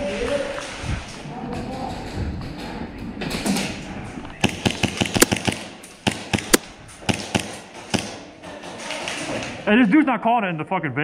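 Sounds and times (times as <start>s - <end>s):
airsoft pistol firing: 4.4s - 8.3s.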